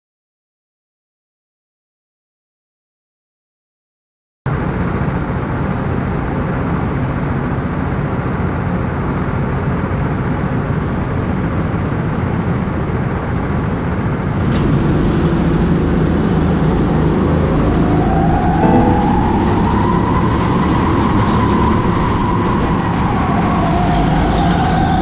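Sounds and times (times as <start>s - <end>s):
go-kart engine running: 4.6s - 17.9s.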